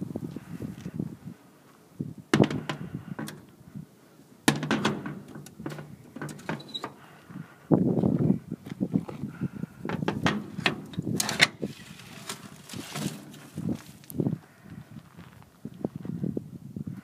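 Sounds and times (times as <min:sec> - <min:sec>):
footsteps crunching on frozen snow: 0:11.7 - 0:16.2.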